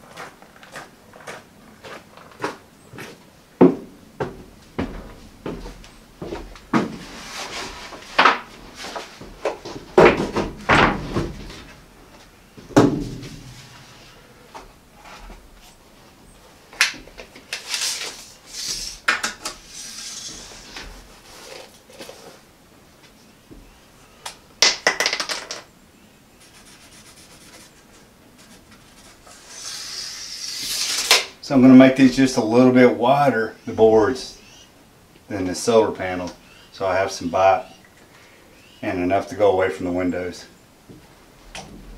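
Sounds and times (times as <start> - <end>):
rustle: 5.4 - 24.5
wooden boards knocking: 9.3 - 11.7, 12.7 - 13.5, 24.6 - 25.6
pencil scratching on wood: 26.4 - 30.8.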